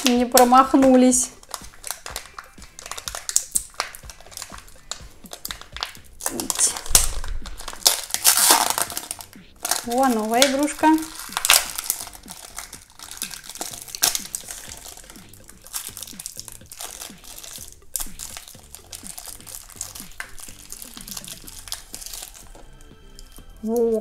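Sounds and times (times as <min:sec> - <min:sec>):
crinkly packaging crackling: 0:00.0 - 0:24.0.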